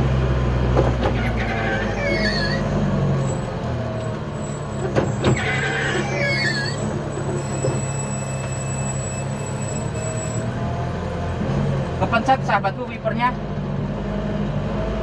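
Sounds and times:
truck engine humming: 0.0s - 15.0s
wiper blades squeaking on glass: 1.2s - 3.4s, 4.4s - 10.5s.

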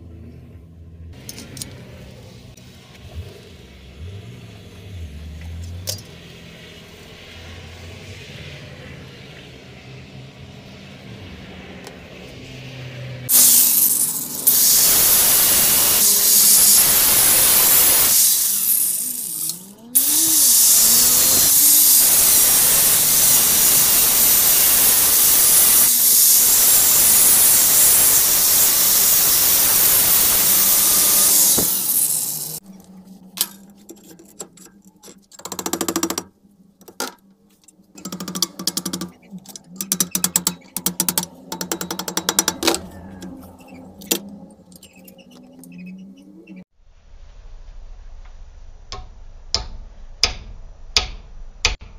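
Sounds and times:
angle grinder cutting metal: 13.3s - 32.8s.

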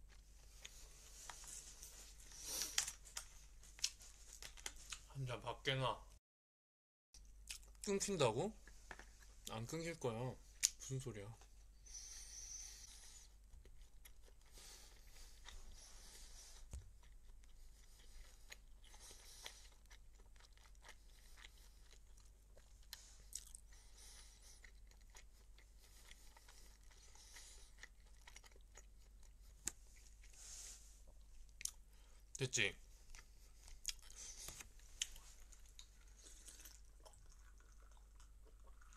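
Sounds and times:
chewing and crunching: 0.0s - 5.1s, 12.9s - 30.4s, 33.0s - 38.9s.

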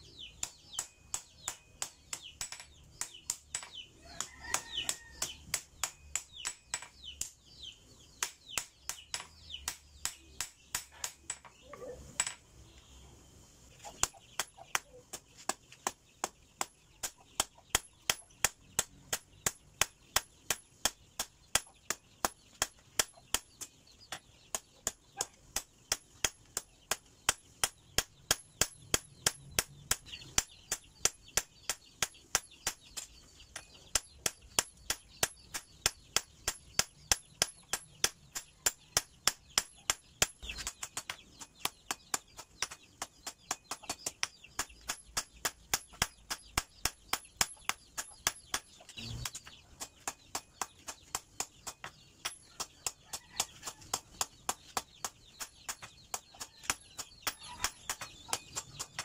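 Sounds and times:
hammer striking metal on anvil: 4.5s - 7.3s.

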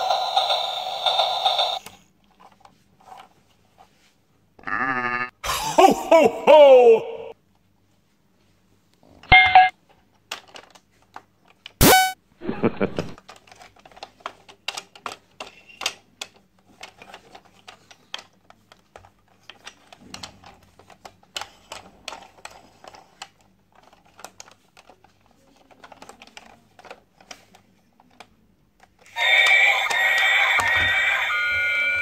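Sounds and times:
plastic toy train clicks and knocks: 0.0s - 3.2s, 10.2s - 11.8s, 13.2s - 30.7s
loud electronic toy tune: 11.8s - 12.2s, 29.2s - 32.0s.

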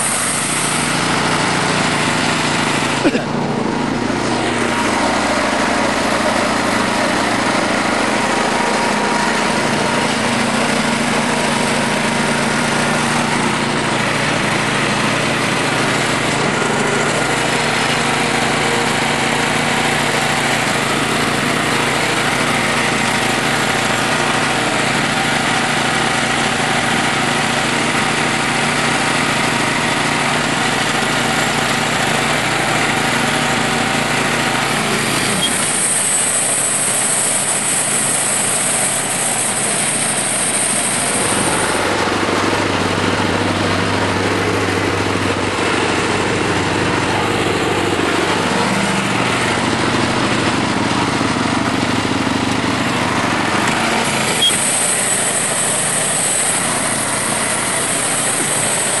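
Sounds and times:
band sawmill cutting log: 0.0s - 59.0s.

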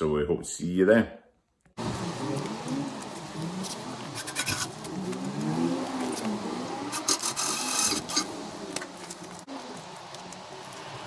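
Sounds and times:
hand rubbing and scraping metal: 3.5s - 5.4s, 6.9s - 8.3s.

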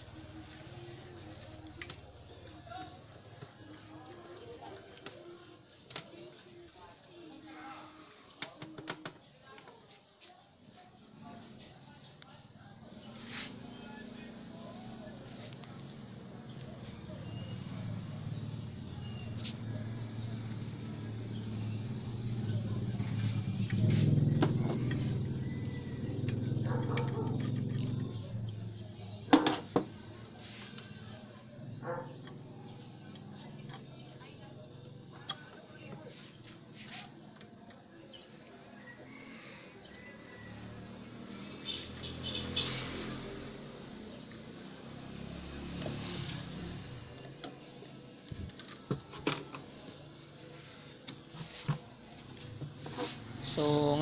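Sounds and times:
low engine-like hum: 12.6s - 29.3s.

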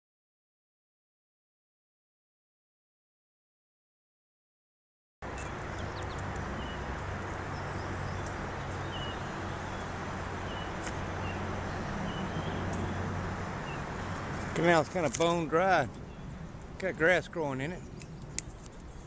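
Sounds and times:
birds chirping: 5.2s - 19.0s
bicycle rolling on gravel: 5.5s - 16.2s.

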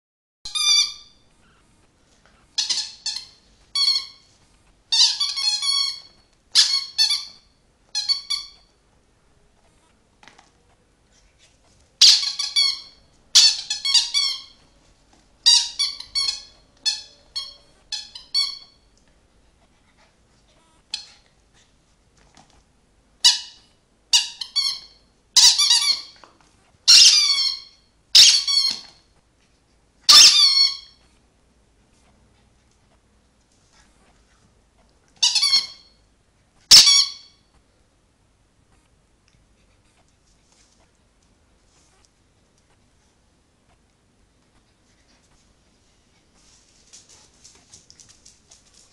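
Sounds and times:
rubber squeaky toy squeaking: 0.5s - 1.6s, 2.5s - 4.3s, 4.9s - 8.8s, 12.0s - 14.7s, 15.4s - 18.9s, 20.5s - 21.2s, 23.2s - 26.2s, 26.8s - 29.1s, 30.1s - 31.0s, 35.2s - 36.0s, 36.6s - 37.5s.

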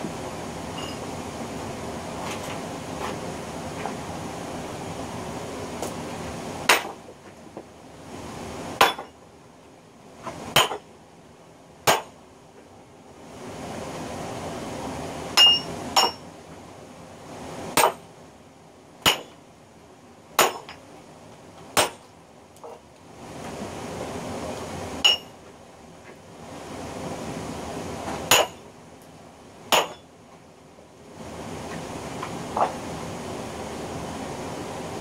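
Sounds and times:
sledgehammer striking steel wedges: 6.7s - 7.0s, 8.8s - 9.1s, 10.5s - 10.8s, 11.9s - 12.1s, 15.4s - 16.2s, 17.8s - 18.0s, 19.1s - 19.4s, 20.4s - 20.7s, 21.8s - 22.0s, 25.0s - 25.3s, 28.3s - 28.6s, 29.7s - 30.0s.

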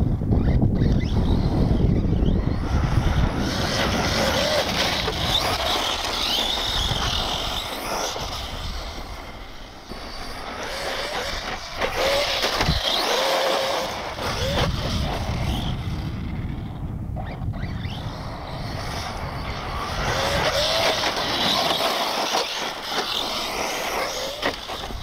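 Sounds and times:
electric toy truck motor whining: 0.1s - 25.0s
steady low rumble: 14.0s - 21.5s.

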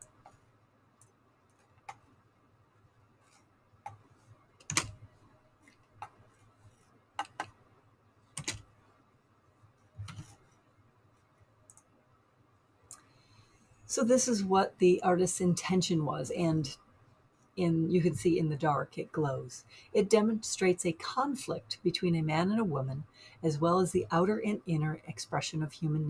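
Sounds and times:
computer mouse clicking: 1.0s - 2.1s, 4.6s - 5.0s, 7.2s - 7.6s, 8.4s - 8.6s, 10.0s - 10.4s, 11.7s - 11.9s.

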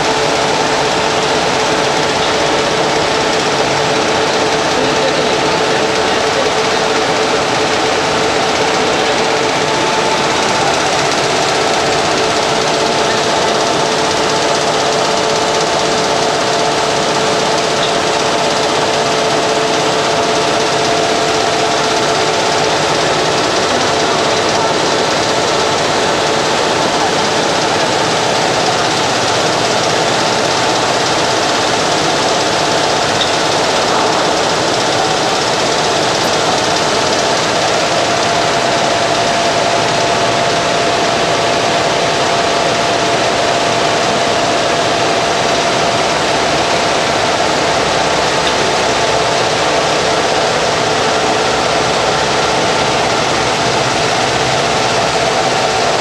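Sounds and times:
machine mechanical din: 0.0s - 56.0s.

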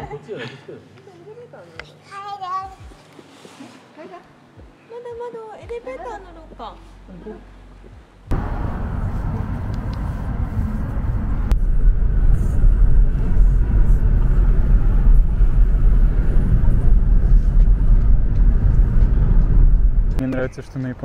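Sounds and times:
car road noise rumbling: 8.1s - 21.0s.

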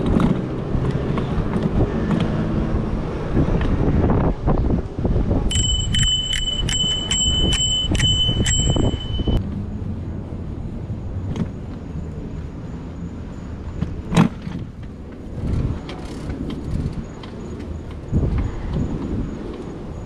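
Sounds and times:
wind on microphone: 0.0s - 9.4s, 14.1s - 20.0s
bicycle bell ringing: 5.5s - 9.4s.

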